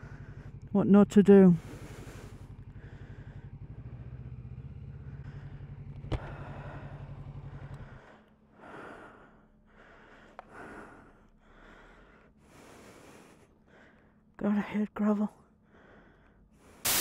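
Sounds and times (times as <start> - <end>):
motorcycle engine idling: 0.0 - 12.0
person breathing heavily: 1.6 - 14.3, 15.6 - 17.0.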